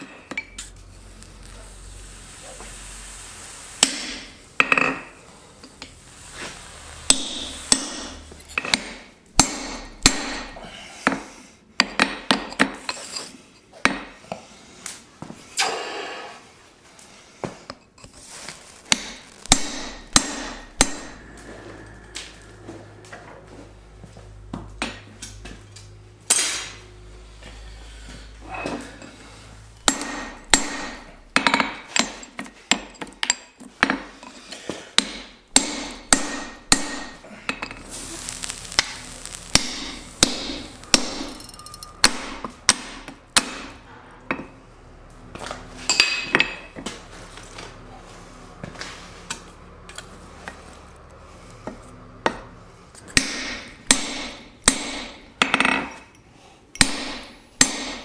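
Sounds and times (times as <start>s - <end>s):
hammer striking metal punch: 7.1s - 10.6s, 18.9s - 21.2s, 29.9s - 32.9s, 35.0s - 37.2s, 39.6s - 44.5s, 53.2s - 55.9s, 56.8s - 58.0s.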